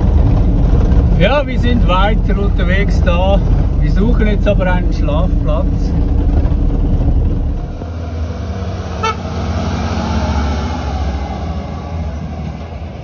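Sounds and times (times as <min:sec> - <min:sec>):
heavy vehicle engine running: 0:00.0 - 0:13.0
short horn toot: 0:09.0 - 0:09.3.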